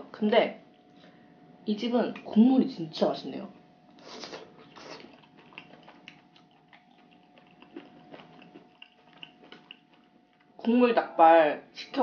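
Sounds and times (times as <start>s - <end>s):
wet chewing sounds: 0.6s - 1.2s, 3.9s - 10.7s
slurping broth from spoon: 4.0s - 9.7s.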